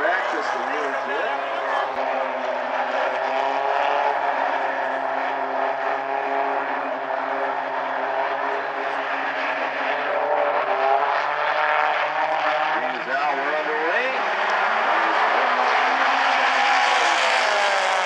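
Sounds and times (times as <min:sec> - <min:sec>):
race car engines: 0:00.0 - 0:18.0.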